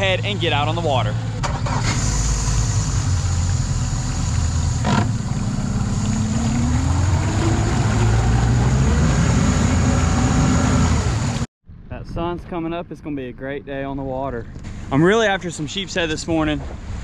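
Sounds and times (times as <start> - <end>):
outboard motor running: 0.0 - 11.5.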